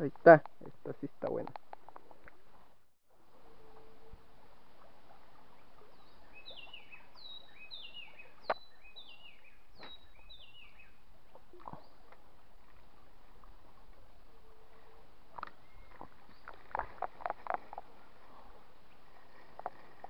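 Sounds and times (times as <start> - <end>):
steady outdoor hiss: 0.0 - 20.0
bird singing falling notes: 6.3 - 10.9.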